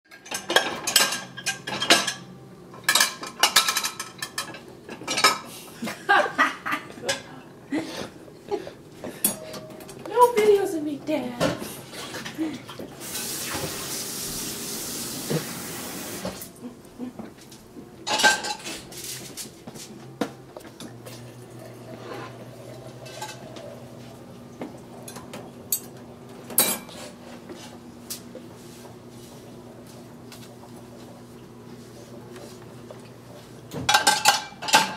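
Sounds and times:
dishes clattering in dishwasher racks: 0.1 - 5.5, 9.0 - 14.0, 18.1 - 19.1, 20.8 - 23.8, 24.7 - 27.2, 33.7 - 34.9.

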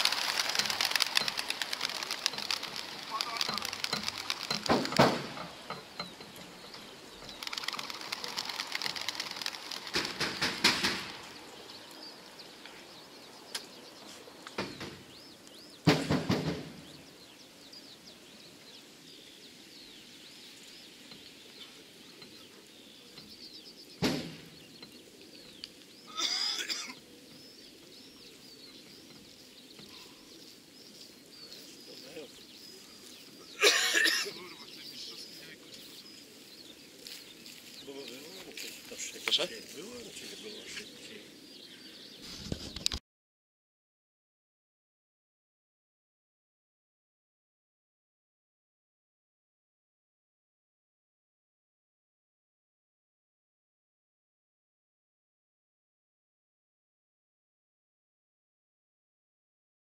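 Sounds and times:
pigeon wings clattering: 0.0 - 11.4
faint bird chirping: 0.9 - 9.9, 11.2 - 15.9, 16.8 - 43.0
sharp knocks: 3.4 - 6.8, 9.9 - 11.2, 15.8 - 16.8.

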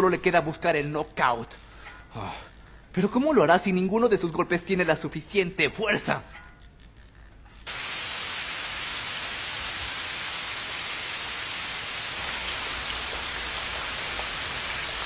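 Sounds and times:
heavy rain pouring: 7.7 - 15.0.

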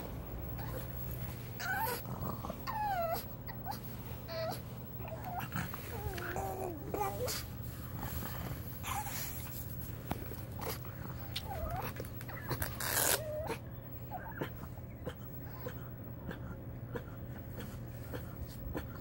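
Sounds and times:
dog whimpering: 0.5 - 7.5, 8.8 - 9.4, 11.1 - 17.2.

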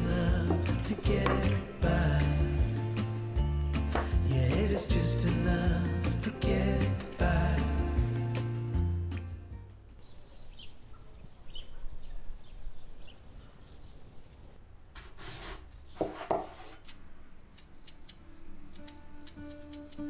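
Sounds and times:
knife scraping radish peel: 15.0 - 20.0.

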